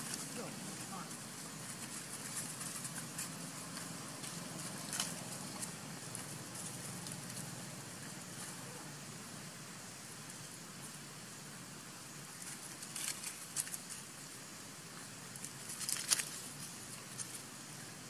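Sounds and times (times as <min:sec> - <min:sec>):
dry leaves crackling and rustling: 0:00.0 - 0:08.7, 0:12.3 - 0:14.1, 0:15.4 - 0:17.5
steady high hiss: 0:00.0 - 0:18.0.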